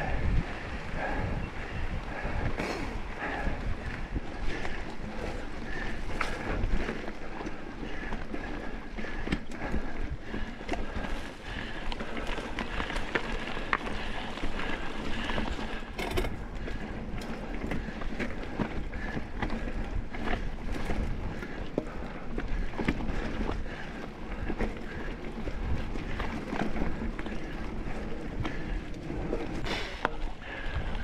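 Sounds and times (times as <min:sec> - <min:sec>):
wind on microphone: 0:00.0 - 0:07.0
bike clicks and rattles: 0:00.0 - 0:31.0
bike tyres on dirt: 0:00.0 - 0:31.0.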